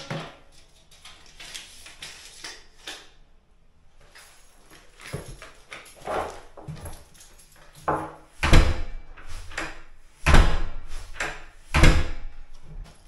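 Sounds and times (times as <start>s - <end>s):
door shutting heavy thuds: 7.9s - 12.3s.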